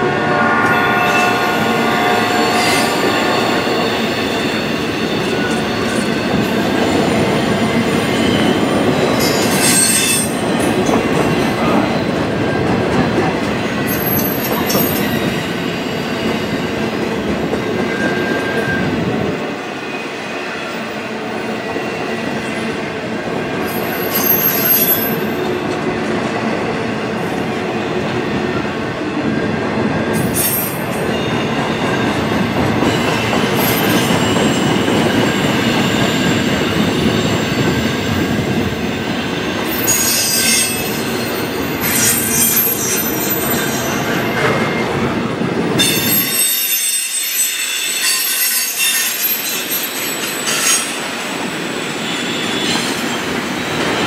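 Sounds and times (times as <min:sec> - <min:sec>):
high hissing squeals: 0:00.0 - 0:05.8
squealing wheels: 0:00.6 - 0:11.0, 0:23.6 - 0:25.3, 0:39.7 - 0:44.6, 0:45.8 - 0:54.0.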